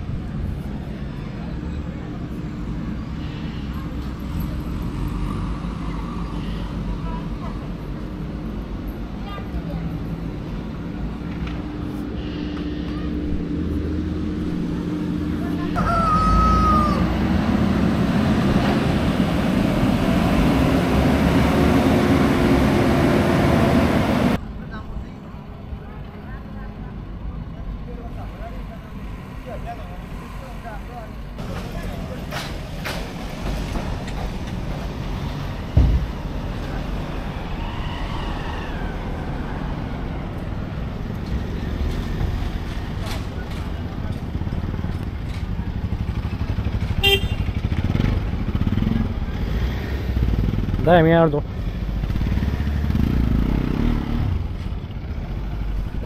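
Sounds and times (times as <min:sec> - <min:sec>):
road rumble: 0:00.0 - 0:56.0
vehicle engine hum: 0:00.0 - 0:56.0
sharp thump: 0:35.7 - 0:36.2.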